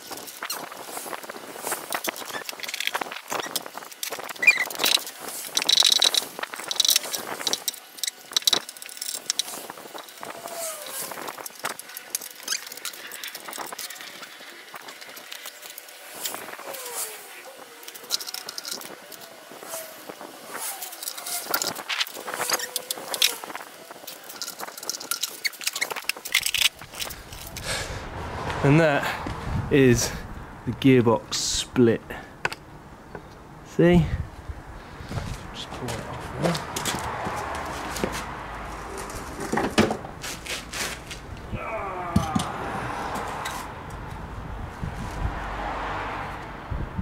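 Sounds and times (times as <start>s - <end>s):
drawn-out falling squeal: 4.2s - 5.0s.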